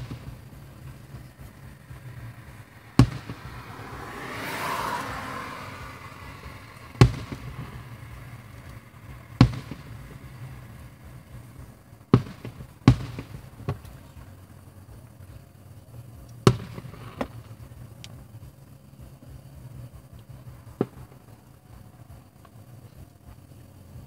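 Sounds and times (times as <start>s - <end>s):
faint firework pops: 0.0s - 2.2s, 2.9s - 5.1s, 6.8s - 14.3s, 16.3s - 18.2s, 20.2s - 21.4s
firework shells bursting: 0.0s - 4.2s, 6.8s - 14.2s.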